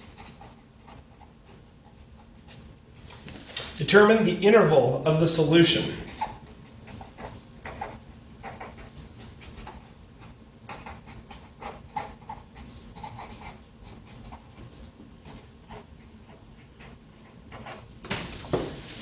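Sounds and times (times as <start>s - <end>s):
marker scratching on paper: 0.0s - 2.7s, 5.8s - 17.9s
faint steady hum: 0.0s - 19.0s.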